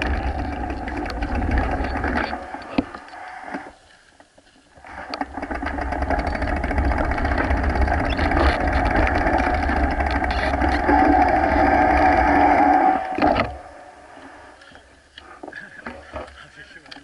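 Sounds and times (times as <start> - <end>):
bike tyres on path: 0.0 - 15.1.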